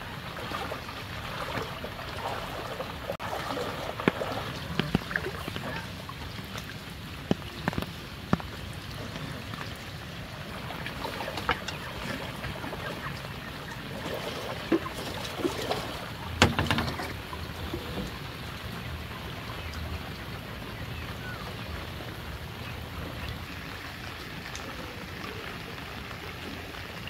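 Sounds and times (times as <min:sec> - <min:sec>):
rain and water hiss: 0:00.0 - 0:27.0
bamboo poles knocking: 0:16.4 - 0:17.1.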